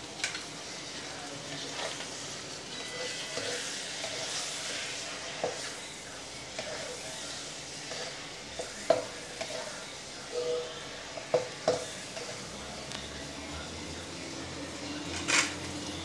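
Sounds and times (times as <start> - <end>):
chicken sizzling in oil: 0.0 - 16.0
spatula knocking and scraping pan: 7.8 - 10.5, 11.1 - 12.4.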